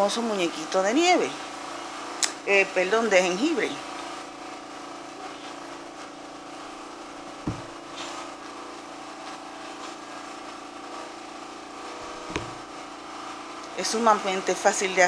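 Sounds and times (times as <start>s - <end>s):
machine humming: 4.4s - 9.1s, 10.2s - 13.8s
soft thump: 7.4s - 7.8s, 12.2s - 12.6s.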